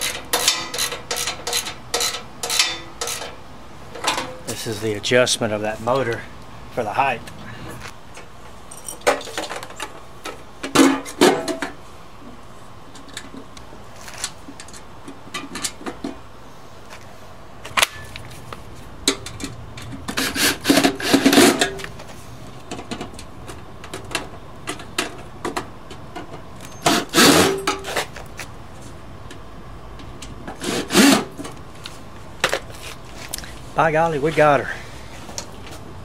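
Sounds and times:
tools and steel parts rattling: 0:08.7 - 0:09.9.

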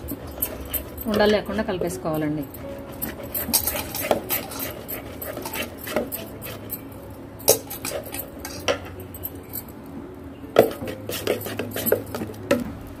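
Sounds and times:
utensil scraping thick mixture in pan: 0:00.1 - 0:06.8, 0:10.6 - 0:12.4.

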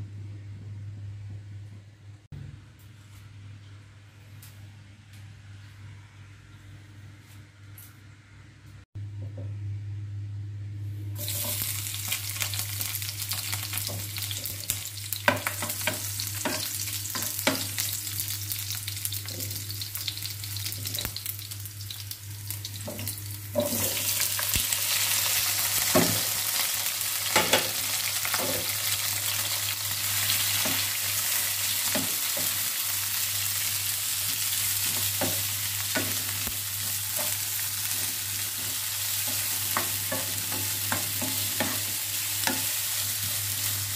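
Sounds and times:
steady low hum: 0:00.0 - 0:24.8
oil sizzling in a frying pan: 0:11.2 - 0:43.9.

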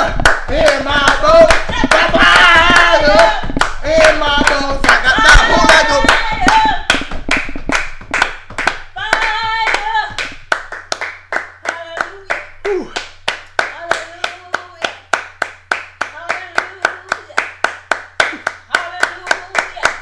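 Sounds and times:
voices singing: 0:00.0 - 0:06.9
rhythmic hand clapping: 0:00.0 - 0:20.0.

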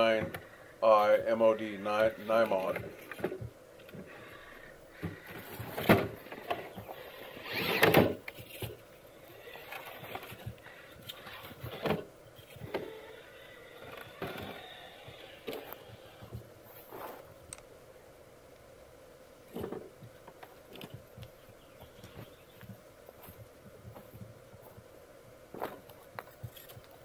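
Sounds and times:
electric motor and servo whirring: 0:02.0 - 0:17.3.

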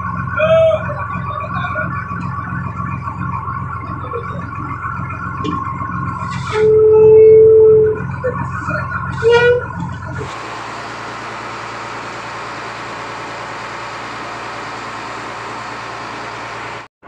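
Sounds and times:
music-like tones: 0:00.0 - 0:10.2
boat engine running: 0:00.0 - 0:16.9.

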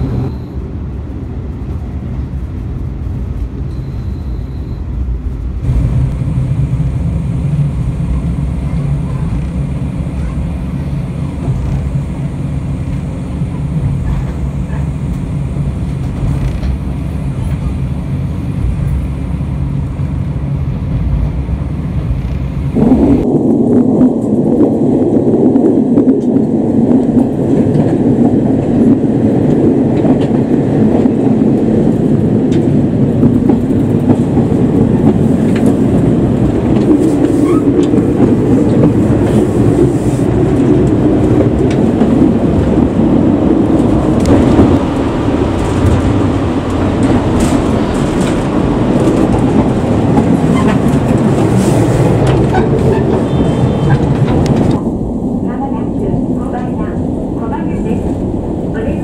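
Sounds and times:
diesel railcar rumbling: 0:00.0 - 0:59.0
wheels clicking over rail joints: 0:26.2 - 0:55.0.

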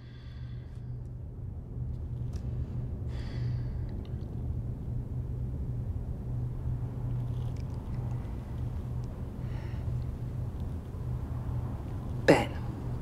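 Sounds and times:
low steady rumble: 0:00.0 - 0:13.0.

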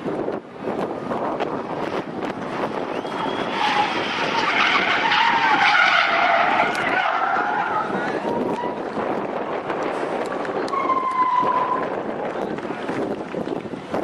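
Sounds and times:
car engine: 0:00.1 - 0:13.6
tyres screeching: 0:02.8 - 0:08.9, 0:10.6 - 0:12.0.

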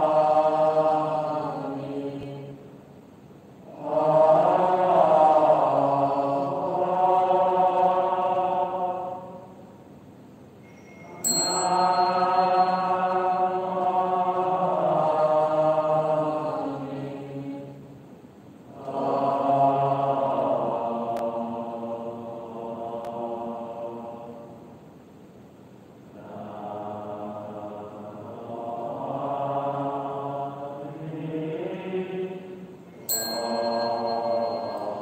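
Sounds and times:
devotional chanting: 0:00.0 - 0:02.8, 0:03.6 - 0:09.8, 0:10.6 - 0:18.0, 0:18.6 - 0:24.9, 0:26.1 - 0:35.0
high ringing tone: 0:10.6 - 0:13.6, 0:32.9 - 0:35.0.

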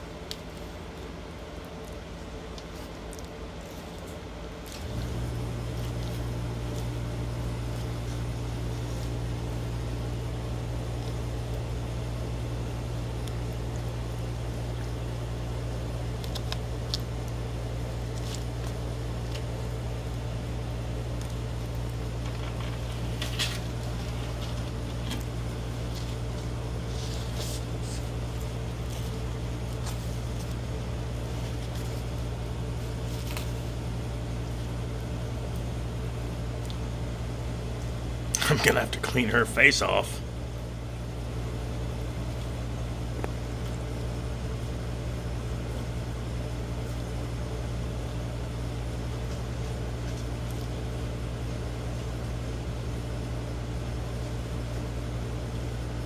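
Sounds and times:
faint clicks and crinkles of eating: 0:00.0 - 0:07.0, 0:12.7 - 0:37.0
low mechanical hum: 0:00.0 - 0:56.0.

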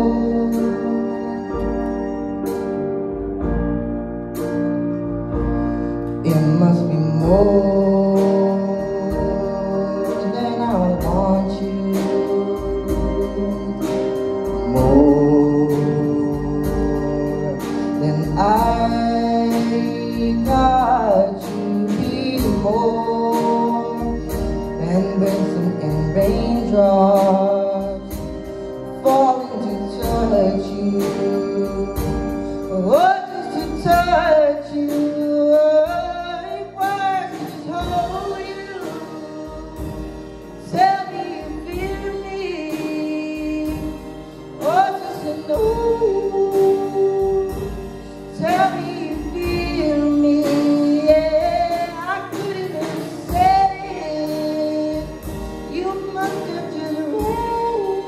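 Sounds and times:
man singing lead: 0:00.0 - 0:02.4, 0:06.0 - 0:58.0
violin: 0:00.0 - 0:06.3
drum kit beat: 0:00.0 - 0:58.0
piano: 0:00.0 - 0:58.0.

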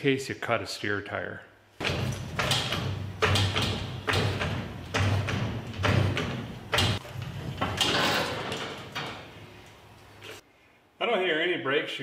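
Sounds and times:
floor jack pumping knocks: 0:01.8 - 0:09.2.

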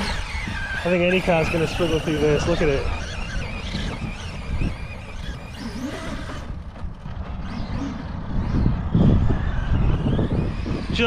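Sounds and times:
toy truck electric motor: 0:00.0 - 0:11.0
low rumble: 0:02.7 - 0:11.0.

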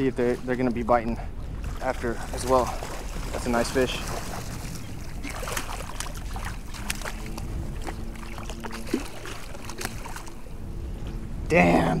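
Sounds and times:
faint low hum: 0:00.0 - 0:12.0
wind rumble on microphone: 0:00.0 - 0:12.0
fish splashing in water: 0:01.6 - 0:10.5.

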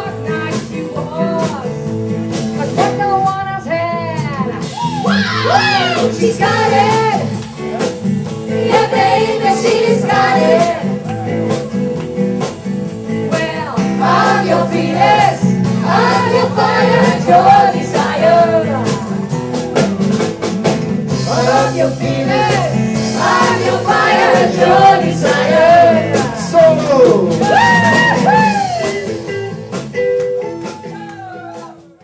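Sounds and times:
acoustic guitar: 0:00.0 - 0:32.0
bass guitar: 0:00.0 - 0:32.0
women singing: 0:05.4 - 0:07.3, 0:08.5 - 0:11.0, 0:13.3 - 0:19.2, 0:21.2 - 0:26.4.

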